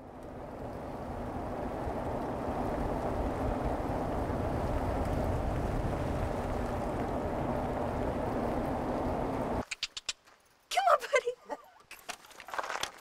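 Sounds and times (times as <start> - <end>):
road and wind noise inside car: 0.0 - 9.6.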